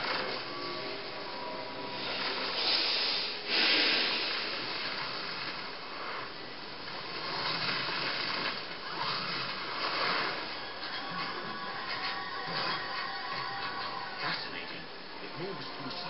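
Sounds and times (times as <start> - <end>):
cartoon electrical crackle: 2.0 - 11.4.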